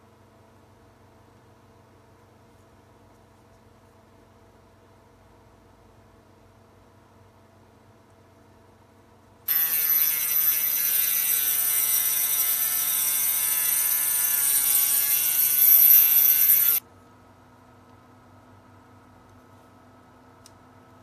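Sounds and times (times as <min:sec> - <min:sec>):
mini drill whining: 0:09.5 - 0:16.8.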